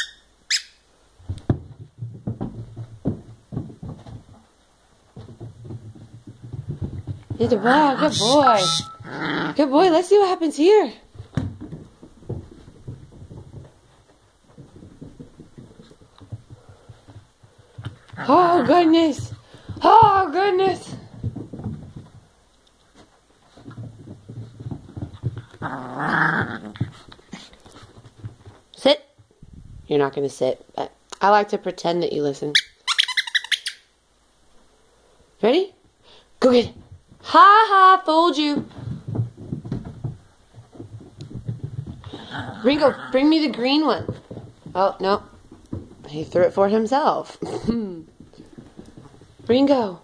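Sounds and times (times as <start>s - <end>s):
dog paws tapping on carpet: 1.2s - 25.8s, 26.4s - 30.1s, 36.4s - 47.4s, 48.0s - 50.0s
dog growling: 9.0s - 9.7s, 25.4s - 27.5s, 42.1s - 43.4s.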